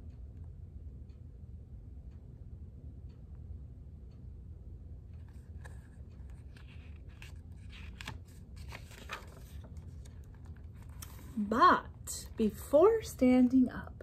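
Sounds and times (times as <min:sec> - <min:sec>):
low room hum: 0:00.0 - 0:14.0
paper pages rustling: 0:05.2 - 0:11.4.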